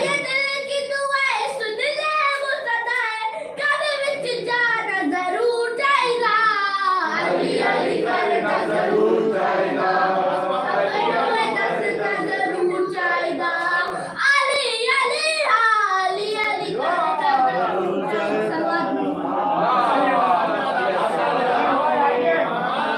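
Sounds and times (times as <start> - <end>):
boys singing a chant: 0.0 - 0.8, 6.1 - 22.9.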